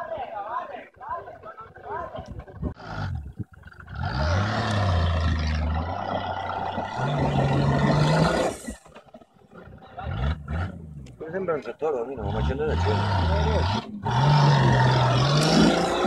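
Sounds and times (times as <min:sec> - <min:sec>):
tyres spinning in loose dirt: 0:01.0 - 0:16.0
engine revving hard: 0:03.9 - 0:08.7, 0:12.2 - 0:16.0.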